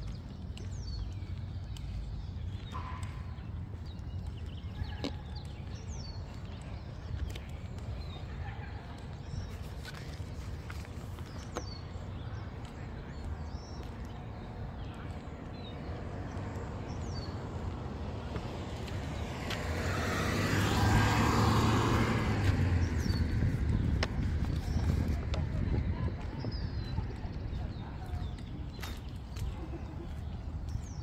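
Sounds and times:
small birds chirping: 0:00.0 - 0:31.0
car passing: 0:16.7 - 0:25.4.

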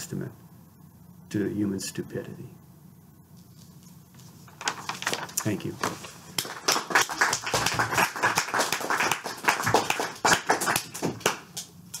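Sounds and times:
audience applauding: 0:06.4 - 0:11.7.

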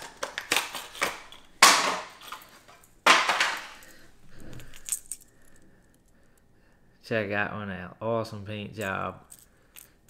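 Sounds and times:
plastic packaging crackling: 0:00.0 - 0:04.0
plastic packaging rustling: 0:00.0 - 0:05.6.

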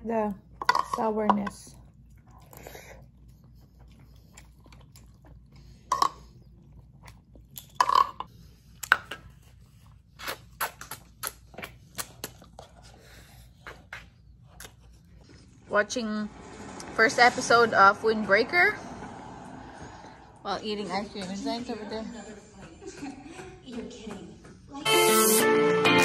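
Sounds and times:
person chewing: 0:01.8 - 0:15.6
wet mouth clicks: 0:10.2 - 0:12.6.

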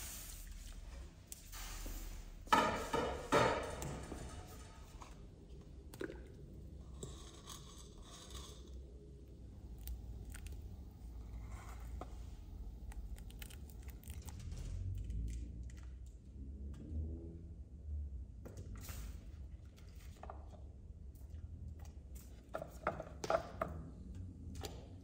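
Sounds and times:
low steady rumble: 0:04.2 - 0:18.4.

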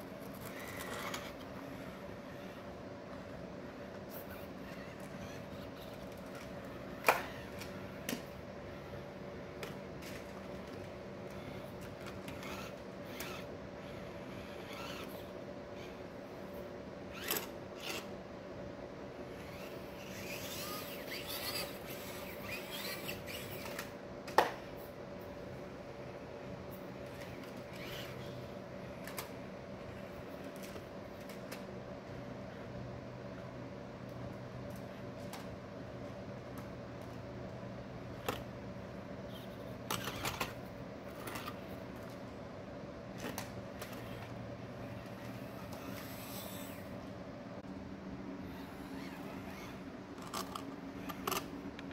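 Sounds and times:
toy truck drivetrain whirring: 0:00.2 - 0:02.7, 0:10.0 - 0:16.0, 0:17.1 - 0:18.1, 0:19.3 - 0:23.9, 0:27.0 - 0:28.4, 0:39.4 - 0:41.7, 0:43.2 - 0:46.9, 0:48.5 - 0:51.5
small electric motor whining: 0:00.2 - 0:09.1, 0:10.0 - 0:16.5, 0:17.1 - 0:18.1, 0:19.2 - 0:23.9, 0:27.0 - 0:29.2, 0:39.3 - 0:41.7, 0:43.3 - 0:47.0, 0:48.4 - 0:51.5.

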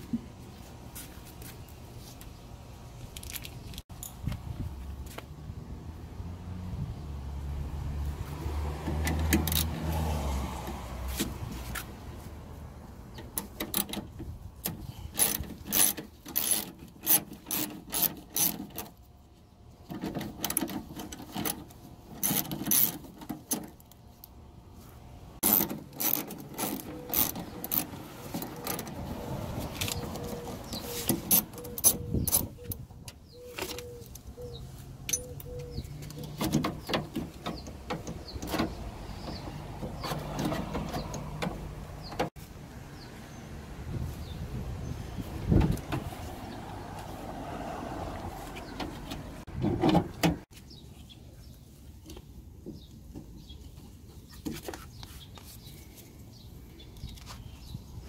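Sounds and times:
ratchet wrench clicking: 0:15.2 - 0:18.6.

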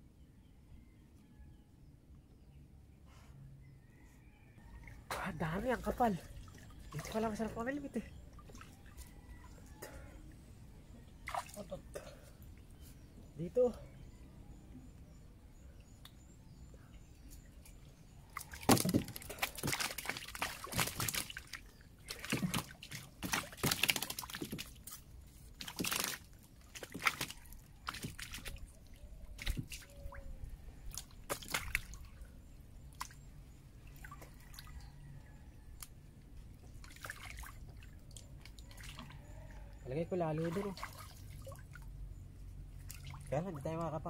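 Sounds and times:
person wading in river water: 0:04.8 - 0:13.1, 0:17.0 - 0:35.3, 0:36.6 - 0:43.6.

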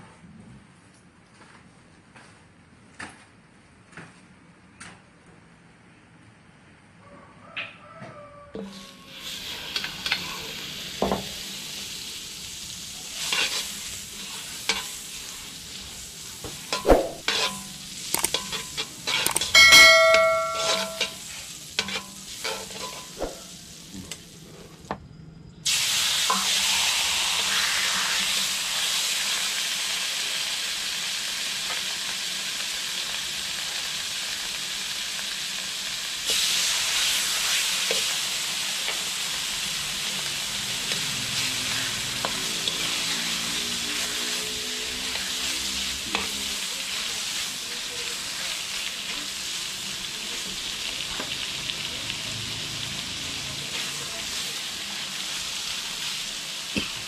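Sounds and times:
food sizzling in a hot pan: 0:08.6 - 0:24.6, 0:25.6 - 0:57.0
kitchen utensils clicking: 0:18.2 - 0:21.2.

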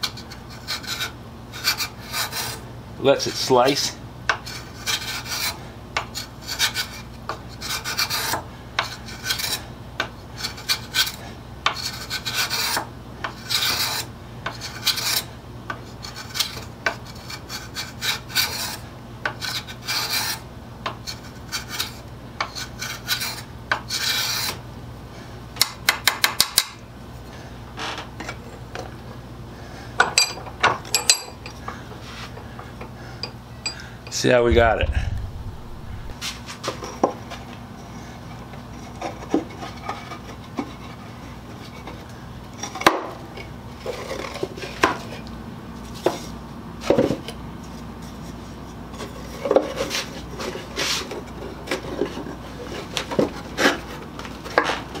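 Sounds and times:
spokeshave rasping on wood: 0:00.2 - 0:02.6, 0:04.3 - 0:07.0, 0:10.4 - 0:15.3, 0:16.0 - 0:20.4, 0:21.0 - 0:24.6.

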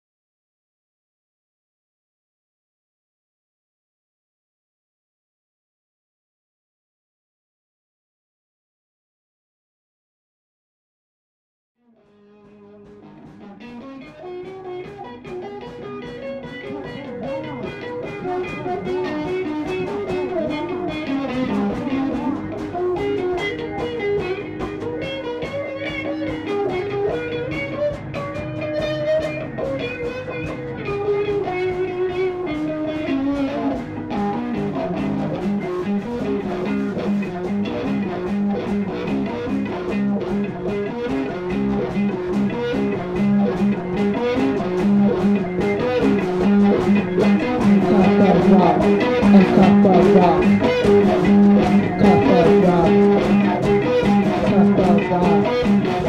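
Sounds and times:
plucked guitar music: 0:12.0 - 0:56.0.

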